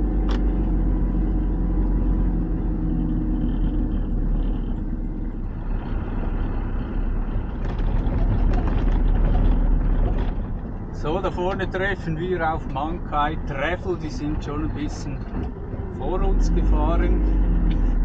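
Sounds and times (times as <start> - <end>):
diesel truck engine rumble: 0.0 - 18.0
tyre and road noise: 0.0 - 18.0
clattering knocks and rattles: 7.2 - 11.7, 15.1 - 16.0.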